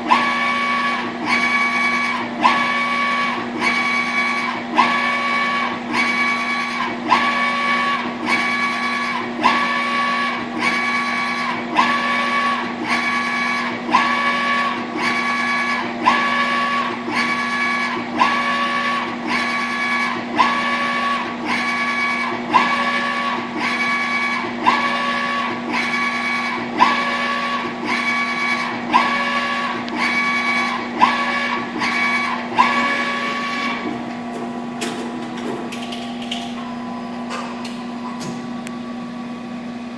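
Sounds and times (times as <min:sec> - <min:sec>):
printer carriage motor whine: 0:00.0 - 0:39.9
steady printer hum: 0:00.0 - 0:39.9.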